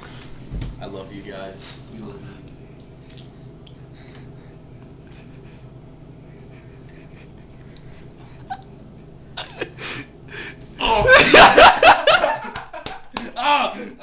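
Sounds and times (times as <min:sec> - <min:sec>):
man coughing and gagging: 0:09.4 - 0:10.0, 0:10.8 - 0:12.5.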